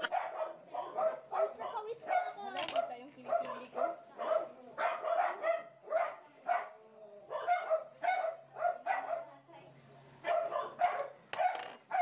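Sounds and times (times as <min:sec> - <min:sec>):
dog yipping and barking: 0:00.0 - 0:02.4, 0:03.3 - 0:06.7, 0:10.3 - 0:12.0.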